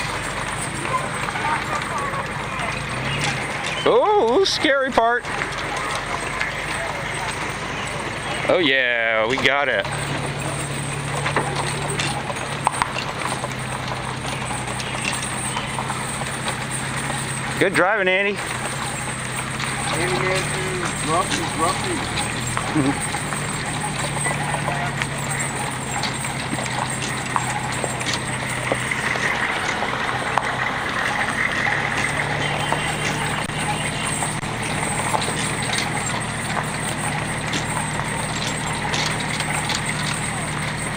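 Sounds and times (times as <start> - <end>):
trailer clicks and knocks: 0.0 - 40.9
trailer rumbling: 0.0 - 40.9
vehicle engine hum: 0.0 - 40.9.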